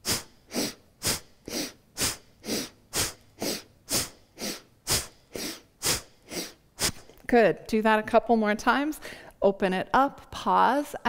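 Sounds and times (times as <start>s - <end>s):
woman forceful breathing: 0.0s - 7.2s, 9.0s - 9.4s.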